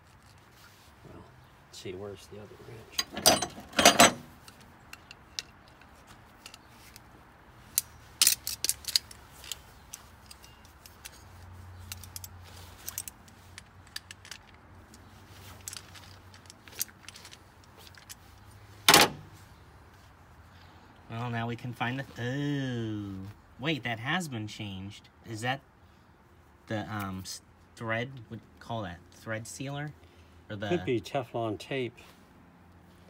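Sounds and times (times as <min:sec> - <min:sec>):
wrenches clinking on metal fitting: 0:02.9 - 0:07.0, 0:08.2 - 0:11.2
metal clank: 0:03.0 - 0:04.3.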